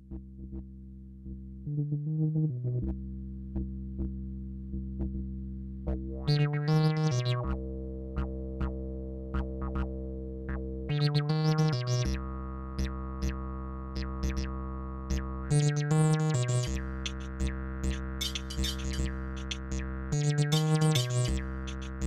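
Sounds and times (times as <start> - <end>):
low held synth bass tone: 0.0 - 22.0
stepping synth notes: 15.7 - 22.0
ticking percussion hits: 17.0 - 17.3, 17.9 - 19.6, 20.5 - 22.0.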